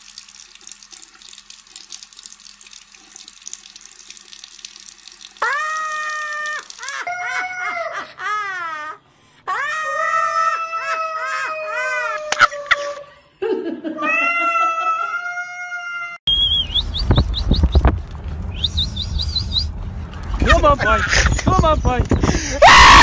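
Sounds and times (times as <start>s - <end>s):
cats yowling: 9.5s - 13.0s, 14.0s - 16.2s
quick rising chirps: 16.3s - 20.4s
loud steady rumble: 16.3s - 21.3s.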